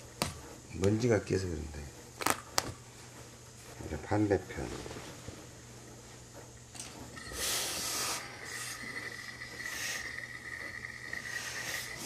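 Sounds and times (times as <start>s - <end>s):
steam iron hissing: 7.2s - 12.0s.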